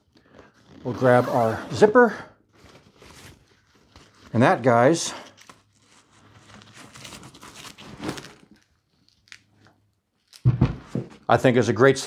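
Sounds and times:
fabric bag rustling: 0:05.4 - 0:08.6.

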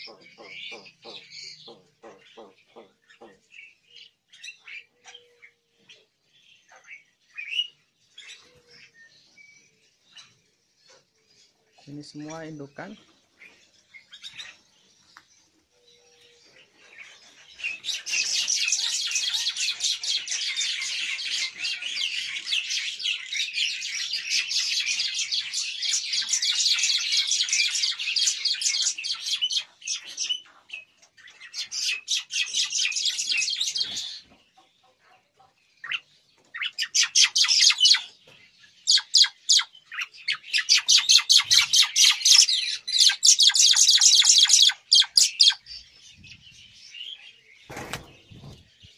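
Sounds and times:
starlings chattering: 0:00.0 - 0:08.8, 0:10.1 - 0:15.0, 0:35.8 - 0:48.9.

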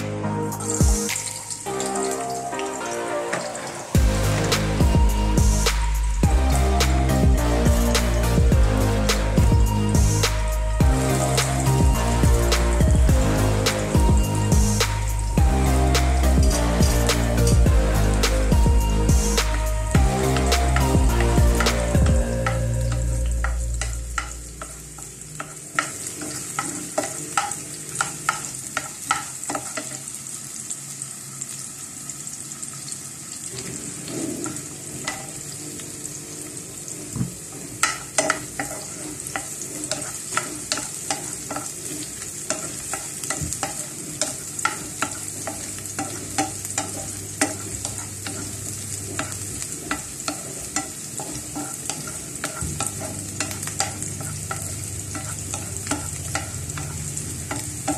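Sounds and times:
onion and garlic sizzling in pan: 0:00.5 - 0:57.9
wooden spatula scraping pan: 0:37.2 - 0:57.9.

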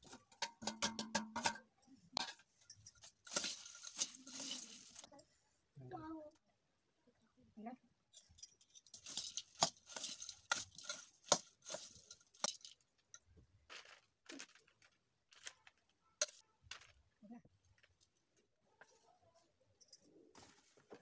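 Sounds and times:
dry rice rustling: 0:03.2 - 0:05.1, 0:09.0 - 0:12.5.

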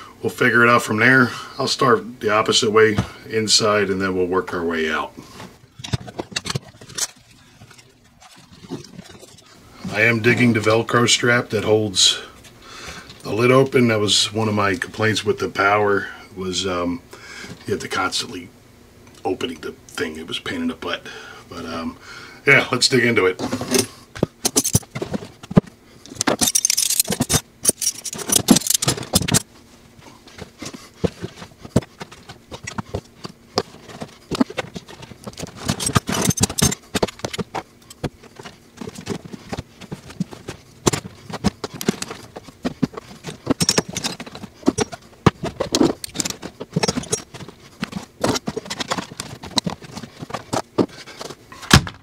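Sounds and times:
steel tools clinking: 0:24.5 - 0:24.9, 0:26.1 - 0:29.4, 0:35.6 - 0:37.4, 0:43.5 - 0:45.0, 0:46.0 - 0:47.4.

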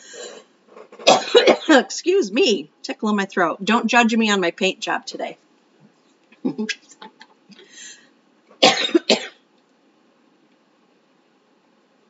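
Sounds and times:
woman coughing: 0:01.0 - 0:01.9, 0:08.6 - 0:09.4.

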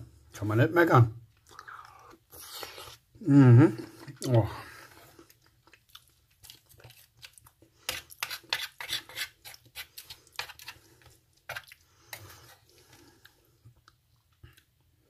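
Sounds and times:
plastic spoon scraping metal tray: 0:07.9 - 0:10.8.

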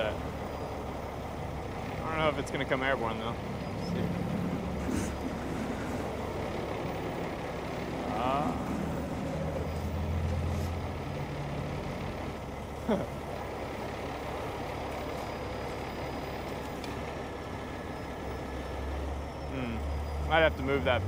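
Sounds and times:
diesel engine running: 0:00.0 - 0:21.0
winches lifting: 0:04.1 - 0:06.4.

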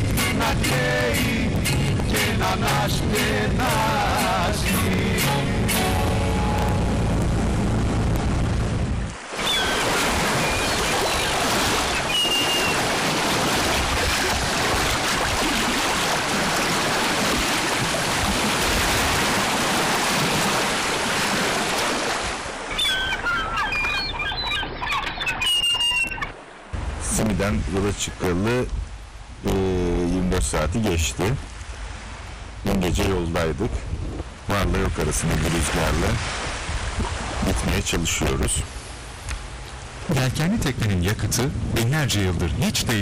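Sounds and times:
music: 0:00.0 - 0:07.0
sea water rushing along hull: 0:00.0 - 0:43.0
high chirping tones: 0:10.4 - 0:12.8, 0:22.7 - 0:26.3.

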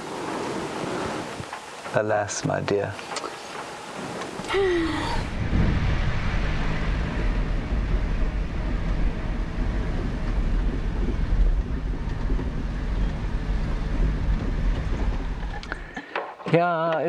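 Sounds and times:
vehicle driving on dirt track: 0:05.2 - 0:16.0.

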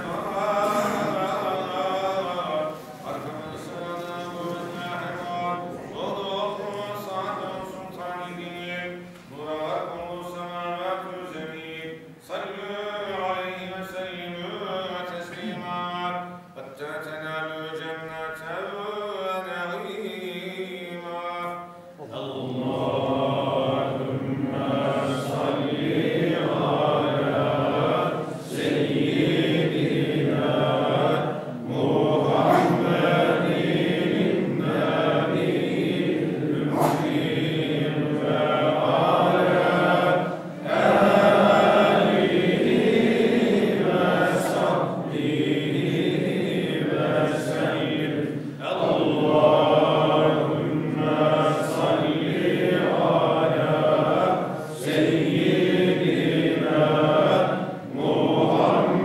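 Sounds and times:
group of men chanting: 0:22.1 - 0:59.0.

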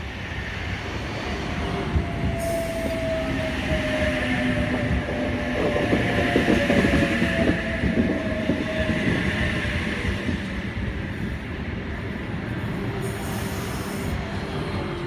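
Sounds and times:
train wheels clattering on rails: 0:02.0 - 0:11.1.

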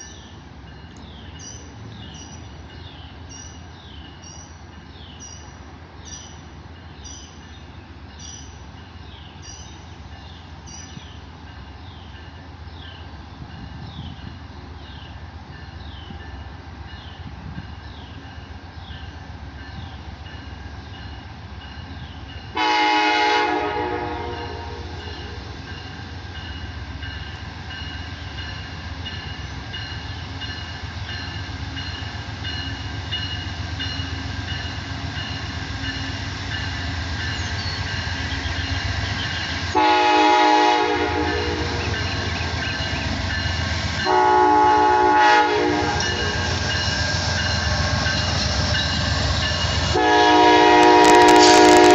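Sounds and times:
locomotive engine rumble: 0:07.7 - 0:51.9
multi-note train horn: 0:22.5 - 0:25.5, 0:39.7 - 0:42.1, 0:44.1 - 0:46.6, 0:49.9 - 0:51.9.

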